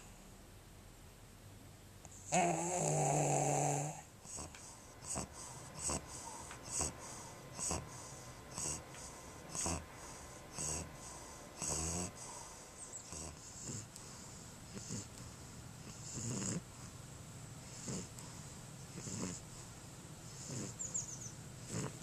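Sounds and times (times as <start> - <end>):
dog snoring: 2.1 - 17.0, 17.6 - 22.0
raspy dog breaths: 4.1 - 17.0, 17.6 - 22.0.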